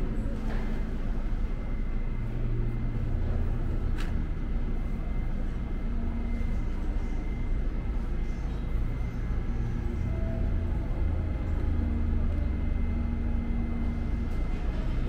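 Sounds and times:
low rumble of subway station: 0.0s - 15.0s
thin steady whine: 0.0s - 15.0s.

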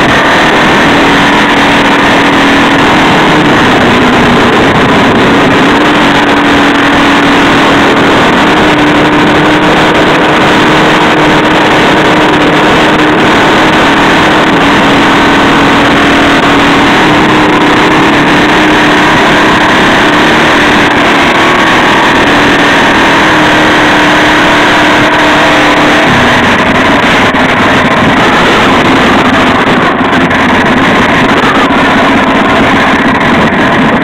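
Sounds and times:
small engine running: 0.0s - 34.0s
wind noise on microphone: 0.0s - 34.0s.

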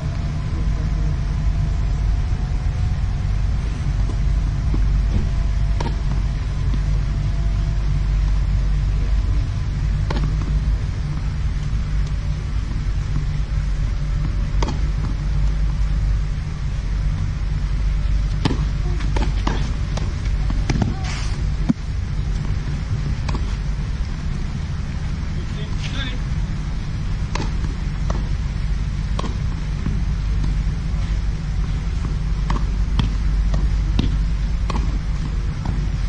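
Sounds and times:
steady low rumble: 0.0s - 36.0s
tennis ball hit by rackets: 5.8s - 6.9s, 10.0s - 11.3s, 14.2s - 15.2s, 18.3s - 21.8s, 23.2s - 23.6s, 27.2s - 28.3s, 29.1s - 30.6s, 32.0s - 35.8s
tennis ball bouncing on clay: 10.0s - 13.3s, 14.2s - 15.8s, 18.3s - 21.0s, 27.2s - 28.4s, 29.1s - 30.6s, 32.0s - 35.8s.

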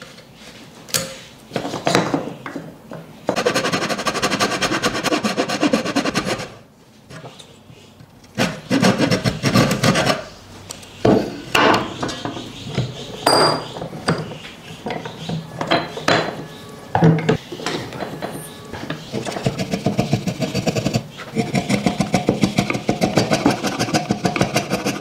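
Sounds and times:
rubbing and scraping on wood: 3.3s - 10.3s, 17.6s - 25.0s.

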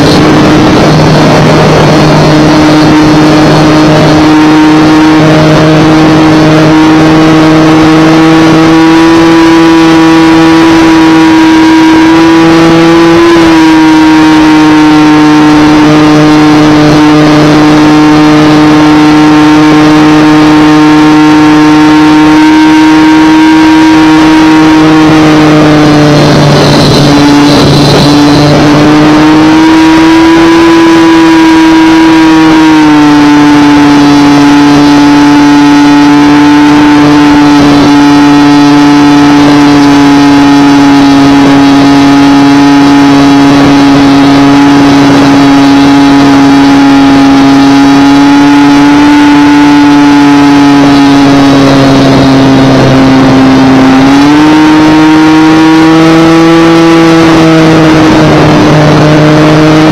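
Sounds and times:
airflow rush: 0.0s - 7.7s, 24.0s - 30.7s
model plane motor and propeller: 0.0s - 53.9s.

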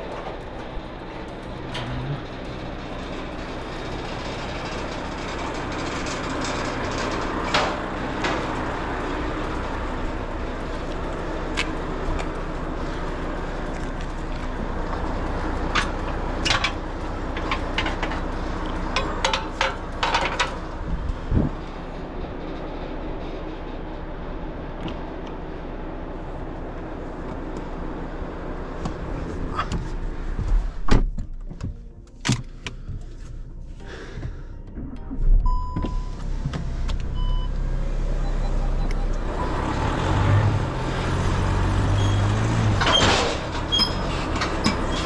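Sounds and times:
metallic clicks and clanks: 0.0s - 24.2s
diesel truck engine idling: 0.0s - 45.0s.

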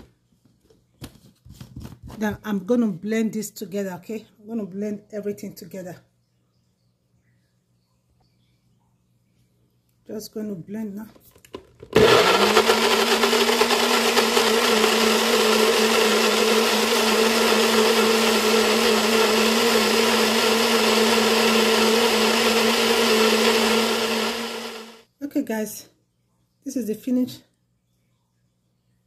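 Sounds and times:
blender motor running: 11.9s - 25.0s.

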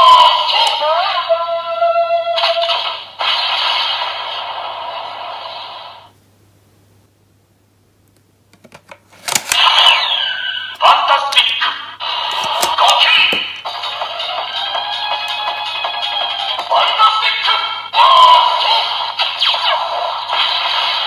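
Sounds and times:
toy electronic sound effects: 9.6s - 11.6s, 12.2s - 21.0s.

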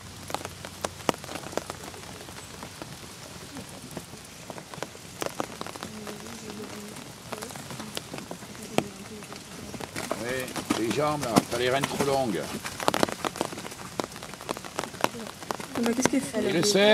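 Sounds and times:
steady rain: 0.0s - 16.9s.

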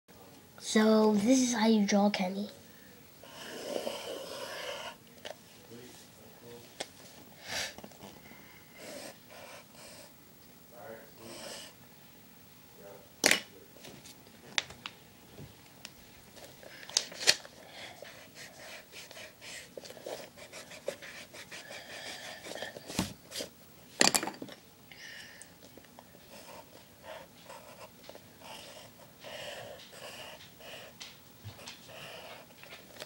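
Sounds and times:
pencil scratching on paper: 8.8s - 10.1s, 18.0s - 23.5s, 26.3s - 32.5s
eraser rubbing: 18.0s - 23.5s.

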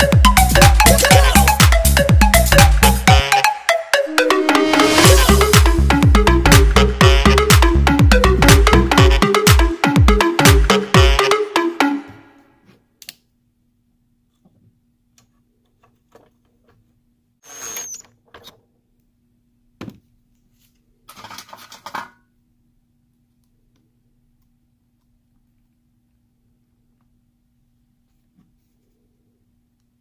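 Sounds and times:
faint steady hum: 22.2s - 30.0s.

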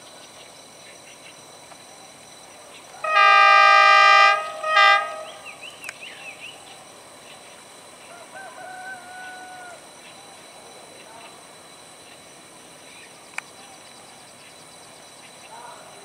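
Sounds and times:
locomotive air horn blasts: 3.0s - 5.6s.

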